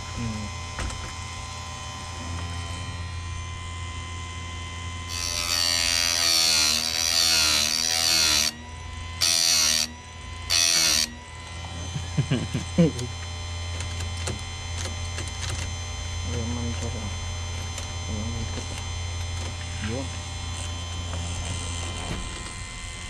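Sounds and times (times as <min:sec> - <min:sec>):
chain sharpener motor humming: 0:00.0 - 0:23.0
grinding wheel grinding saw chain: 0:05.0 - 0:13.2.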